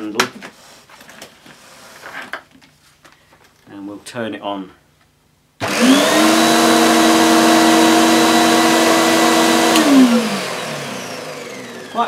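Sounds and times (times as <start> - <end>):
vacuum cleaner motor running: 5.6 - 12.0.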